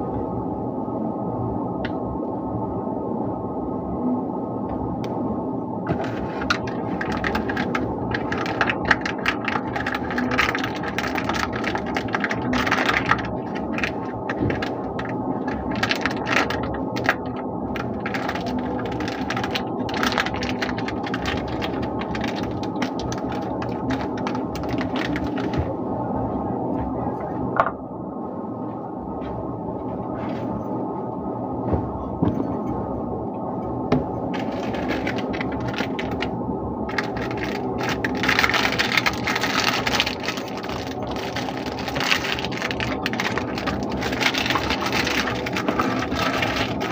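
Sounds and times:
plastic wrapper crinkling: 5.9 - 25.6, 34.3 - 46.9.

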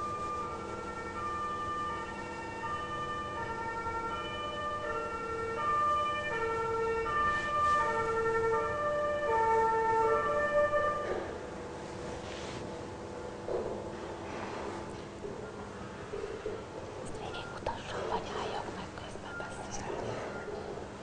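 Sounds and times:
ambulance siren: 0.0 - 11.6.

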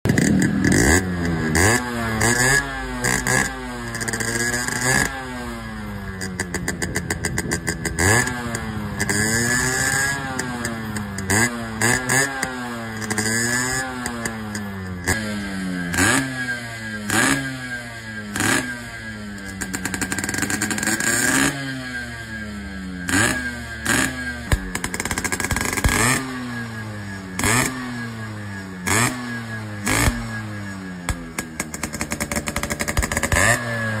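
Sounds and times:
two-stroke motorcycle engine revving: 0.0 - 34.0
exhaust crackling: 0.1 - 34.0.

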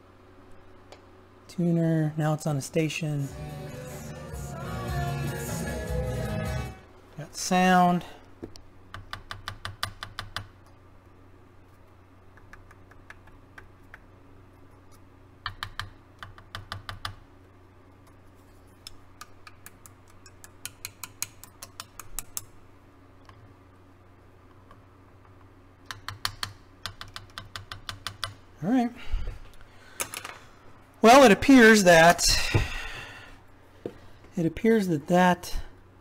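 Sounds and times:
probe tapping circuit board: 15.4 - 17.2, 25.9 - 28.4.

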